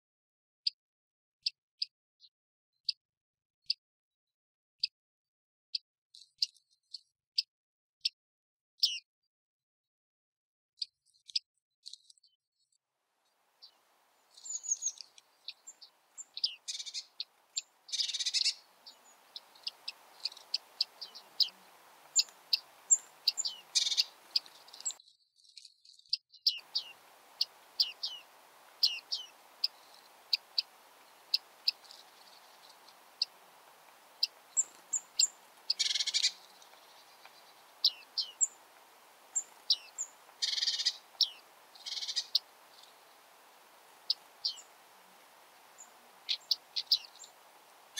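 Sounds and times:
birds calling high notes: 13.6 - 25.0, 26.6 - 47.9.

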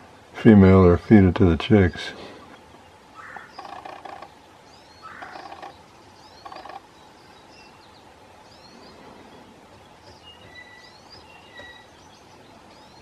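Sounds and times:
woodpecker tapping on wood: 2.6 - 4.4, 5.0 - 6.9, 9.7 - 12.1
faint small-bird chirps: 4.8 - 13.0.

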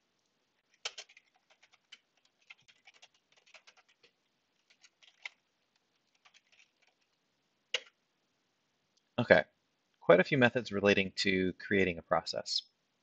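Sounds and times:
faint keyboard typing: 0.2 - 8.0.

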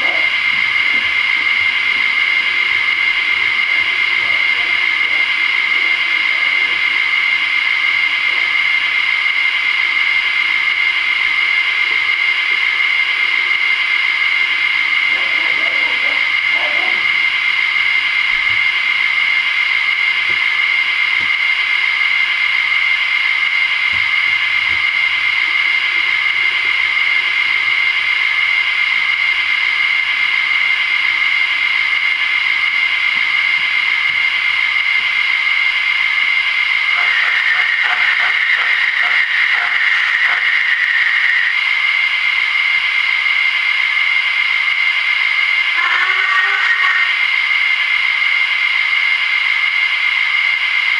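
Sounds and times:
model locomotive steam hiss: 19.1 - 42.5.

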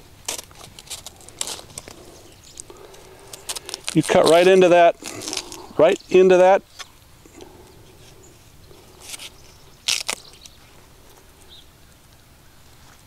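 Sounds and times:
knife crunching through vegetable: 0.2 - 5.7, 8.9 - 10.6.

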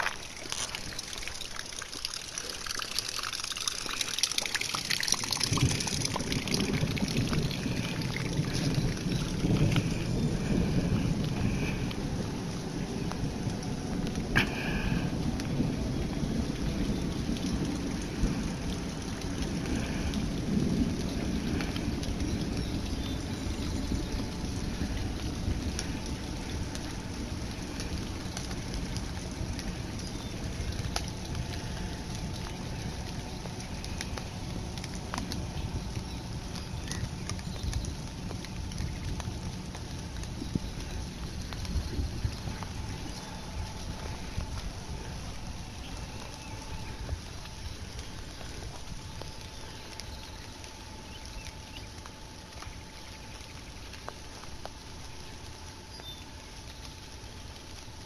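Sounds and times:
drops ticking: 0.0 - 12.0
light rain pattering and dripping: 0.0 - 58.0
wind rumble on microphone: 4.4 - 58.0.

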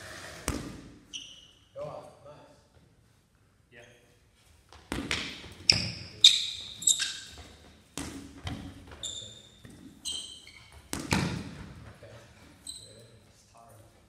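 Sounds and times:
sports shoes squealing: 1.1 - 1.8, 5.5 - 7.9, 8.5 - 11.5, 12.4 - 13.2.

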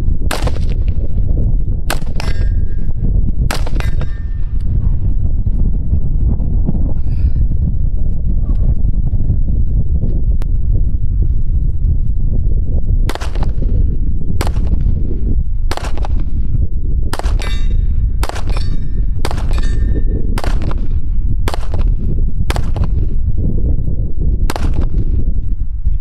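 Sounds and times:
rifle shots: 0.3 - 0.8, 1.9 - 2.5, 3.5 - 4.2, 13.1 - 13.6, 14.4 - 14.8, 15.7 - 16.2, 17.1 - 20.9, 21.5 - 21.9, 22.5 - 23.0, 24.5 - 25.0
steel plate metallic ring: 2.2 - 2.8, 17.4 - 17.9, 18.5 - 20.0.

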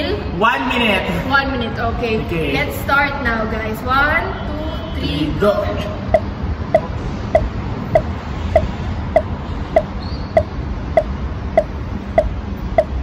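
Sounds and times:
electronic ticking: 6.1 - 13.0.

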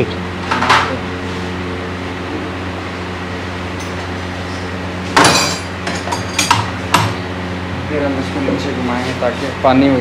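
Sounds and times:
machinery hum: 0.0 - 10.0.

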